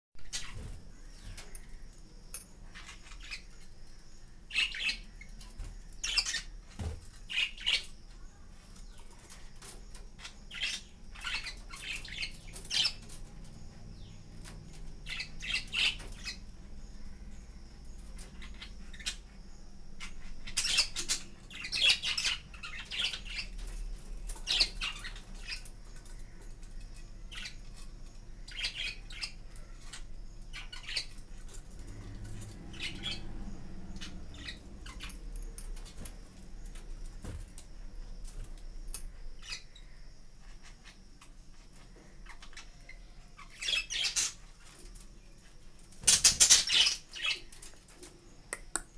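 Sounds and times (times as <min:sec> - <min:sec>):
budgerigars chirping and squawking: 0:04.5 - 0:05.2, 0:06.0 - 0:06.5, 0:07.3 - 0:07.9, 0:10.2 - 0:13.1, 0:15.0 - 0:16.4, 0:20.0 - 0:23.7, 0:24.4 - 0:26.4, 0:28.4 - 0:31.2, 0:32.7 - 0:33.3, 0:42.2 - 0:44.7, 0:46.0 - 0:47.5.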